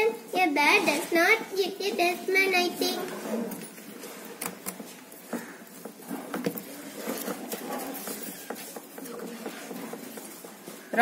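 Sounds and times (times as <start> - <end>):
paper puppets tapping and rustling: 3.7 - 11.0.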